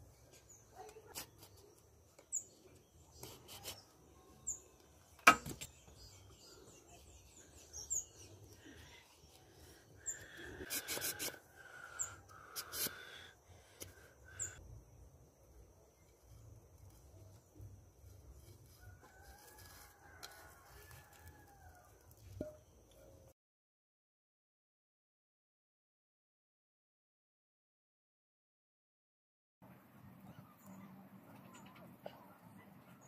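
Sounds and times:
small birds chirping: 0.1s - 14.6s
machete scraping bamboo: 0.3s - 1.8s, 3.1s - 3.9s, 10.6s - 11.4s, 12.5s - 13.1s, 18.0s - 21.4s.

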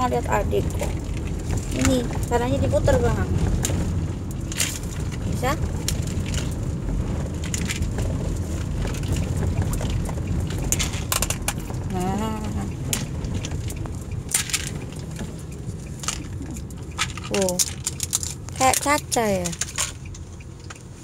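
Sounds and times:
low rumble inside car: 0.0s - 21.0s.

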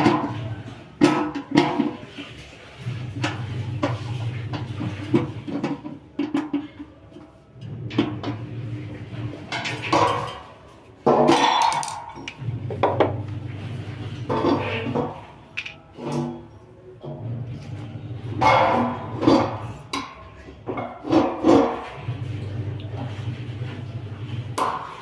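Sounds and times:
metal dish clattering: 0.0s - 2.4s, 9.0s - 13.2s, 13.9s - 16.6s, 18.4s - 22.2s.

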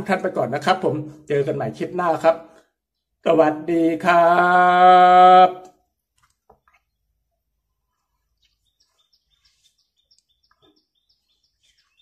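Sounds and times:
faint bird chirping: 5.8s - 12.0s.

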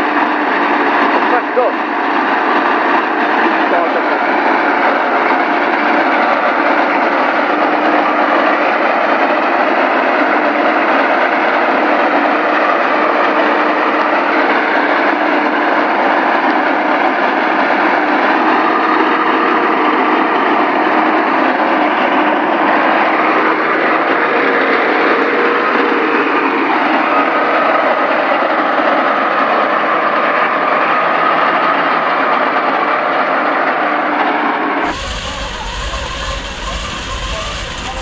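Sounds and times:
aero engine running steadily: 0.0s - 16.7s, 34.8s - 38.0s.

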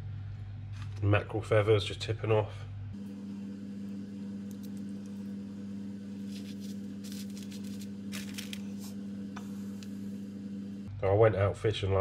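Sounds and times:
low electrical hum: 0.0s - 12.0s
newspaper crackling: 6.2s - 9.0s.

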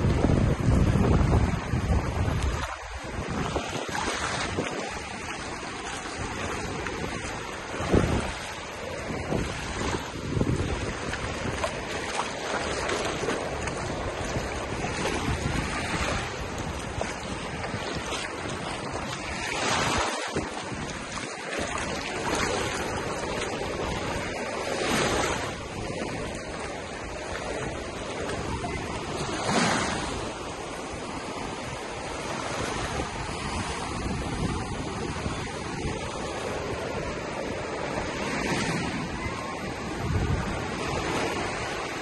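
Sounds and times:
small waves lapping: 0.0s - 42.0s
wind rumbling on microphone: 0.0s - 42.0s.

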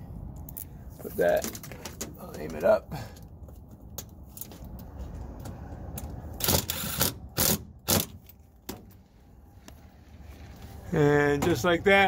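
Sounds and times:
power drill driving a screw: 6.4s - 8.1s.

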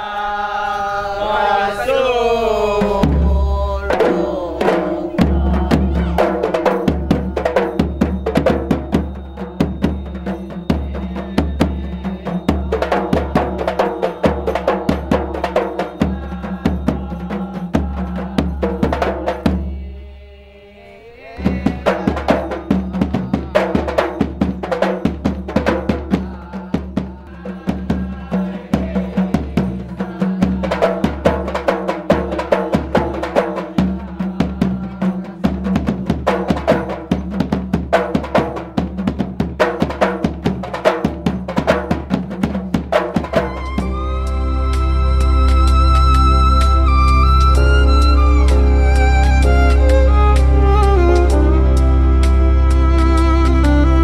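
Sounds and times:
frame drums playing fast rhythm: 2.8s - 19.8s, 21.4s - 44.0s, 45.6s - 51.9s
marching bass drum: 2.8s - 19.8s, 21.4s - 44.0s.

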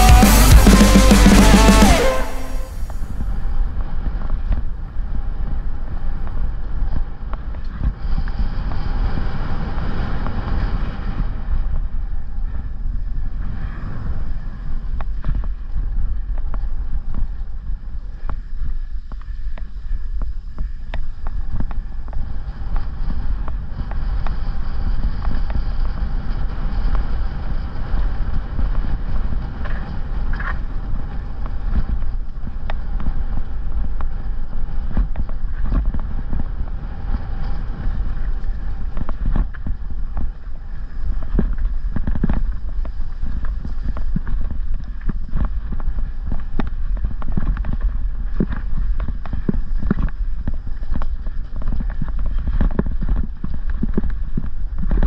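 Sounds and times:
wind buffeting microphone: 2.2s - 55.0s.

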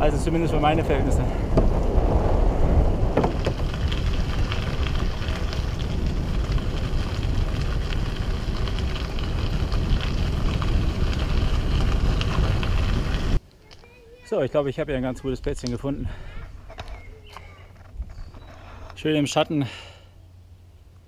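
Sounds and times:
wind rumbling on microphone: 0.0s - 13.4s
tyres crackling on rough track: 0.0s - 19.5s.

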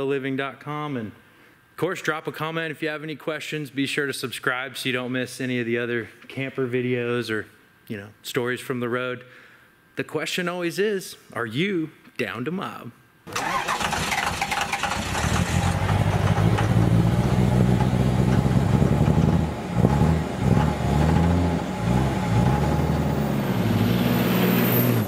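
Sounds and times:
vehicle engine revving: 13.7s - 25.0s.

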